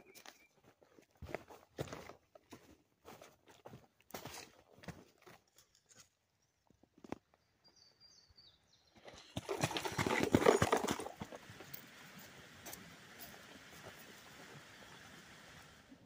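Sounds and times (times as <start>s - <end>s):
footsteps crunching dry leaves: 0.1s - 6.0s.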